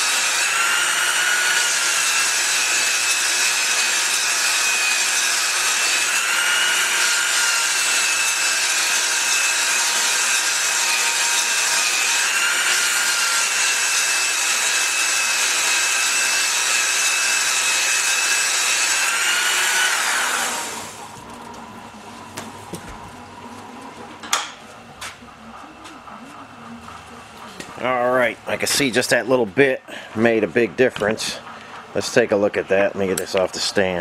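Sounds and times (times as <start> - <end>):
faint belt attachment whine: 19.9 - 34.0.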